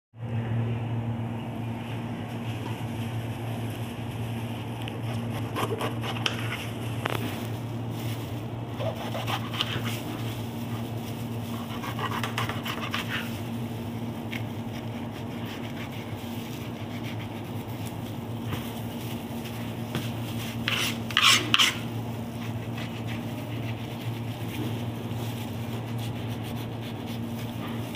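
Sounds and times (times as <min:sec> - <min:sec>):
low mechanical hum: 0:00.2 - 0:27.9
knife on plastic cutting board: 0:20.4 - 0:23.7.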